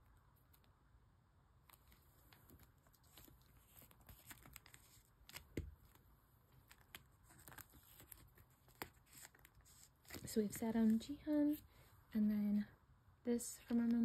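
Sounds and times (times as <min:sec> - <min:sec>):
plastic sleeves rustling and clicking: 0:01.6 - 0:11.6.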